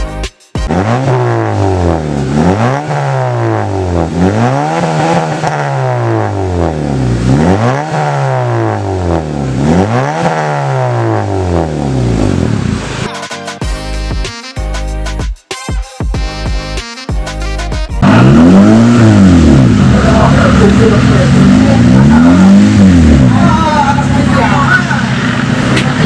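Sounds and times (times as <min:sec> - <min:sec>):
car engine revving: 0:00.6 - 0:13.1, 0:18.0 - 0:26.0.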